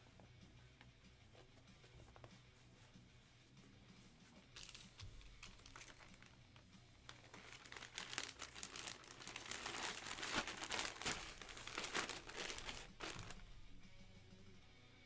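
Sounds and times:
plastic bag crinkling: 4.6s - 6.4s, 7.1s - 13.4s.

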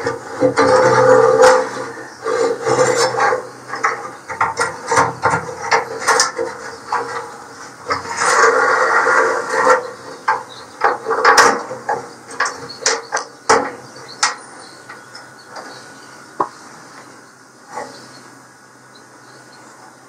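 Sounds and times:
metal scraping: 0.0s - 15.8s.

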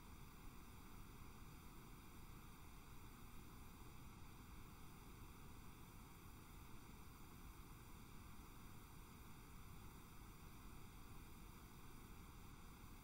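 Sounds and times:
faint recording hiss: 0.0s - 13.0s.

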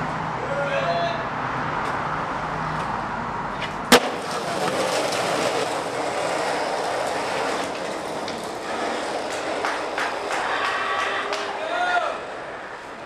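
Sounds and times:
skateboard wheels rolling on concrete: 0.0s - 13.0s
skateboard landing clack: 3.6s - 11.6s
skateboard grinding on ledge: 3.6s - 13.0s.

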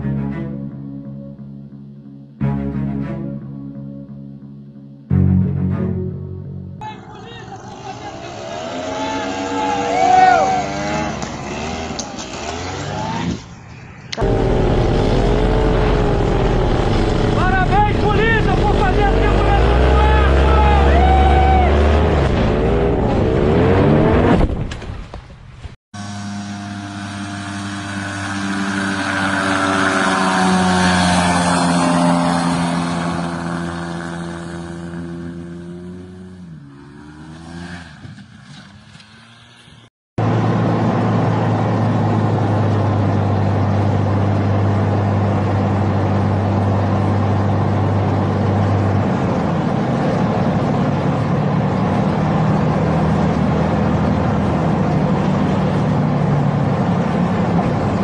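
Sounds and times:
aircraft engine drone in cockpit: 13.3s - 18.7s, 26.0s - 35.0s, 40.2s - 58.0s
light aircraft passing overhead: 26.0s - 35.4s.

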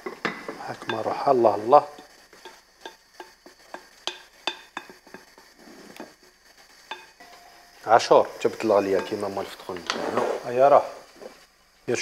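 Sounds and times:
wooden spoon tapping glass bowl: 2.5s - 5.3s, 6.9s - 7.8s, 8.9s - 9.3s.

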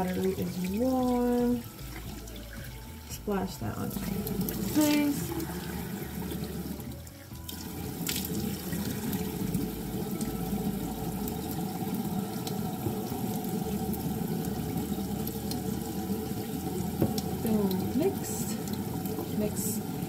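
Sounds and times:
faucet running into sink: 0.0s - 20.0s.

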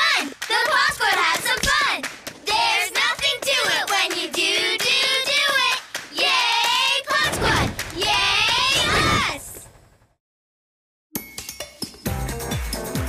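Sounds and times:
hand claps: 0.0s - 7.0s, 7.6s - 8.6s
cartoon children singing: 0.0s - 9.6s.

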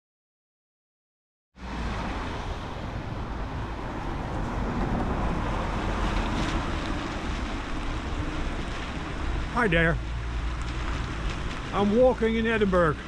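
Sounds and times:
low traffic rumble: 1.6s - 13.0s
car tyres hissing on wet road: 3.6s - 13.0s.

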